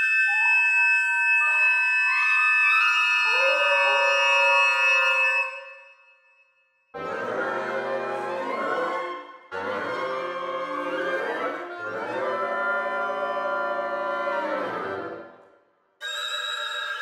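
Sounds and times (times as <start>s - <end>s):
woodwind ensemble cluster chords: 7.0s - 15.1s.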